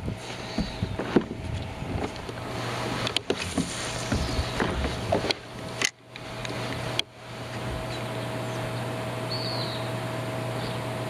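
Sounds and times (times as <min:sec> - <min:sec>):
water rushing: 0:01.9 - 0:11.0.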